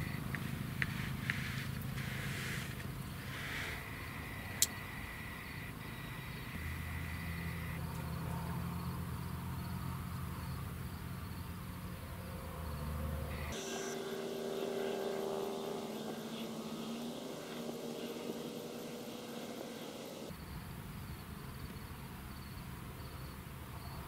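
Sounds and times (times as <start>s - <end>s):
thin high whine: 0.0s - 8.0s, 13.3s - 20.3s
engine droning: 0.0s - 20.4s.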